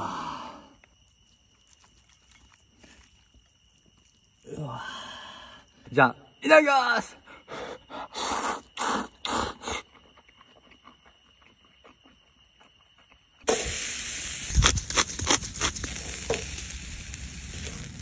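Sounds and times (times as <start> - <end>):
meat sizzling on grill: 13.5 - 18.0.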